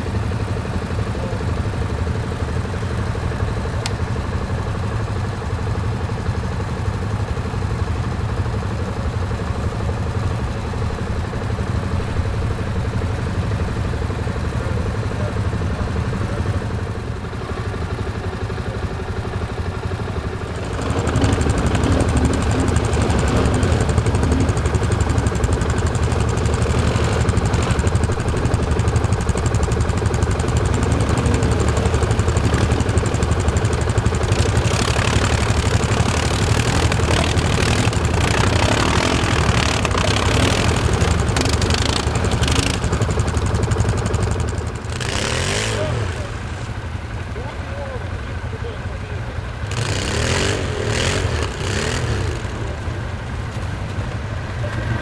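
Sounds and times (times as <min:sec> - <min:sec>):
atv engines idling: 0:00.0 - 0:55.0
quad engine running close: 0:00.0 - 0:55.0.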